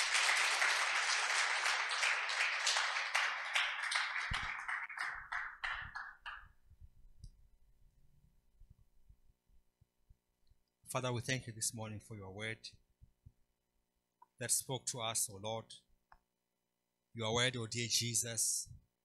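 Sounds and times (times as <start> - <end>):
crowd applauding: 0.0 - 6.5.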